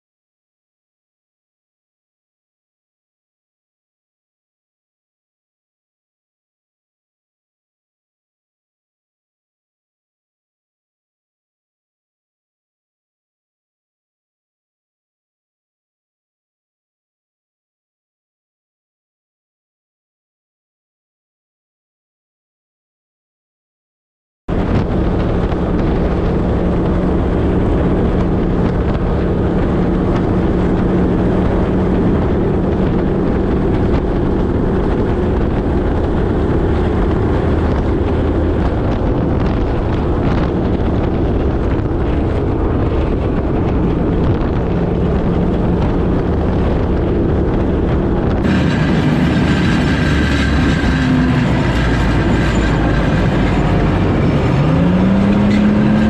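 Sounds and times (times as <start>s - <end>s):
heavy constant rumble: 24.5s - 56.0s
military vehicle engine: 24.5s - 56.0s.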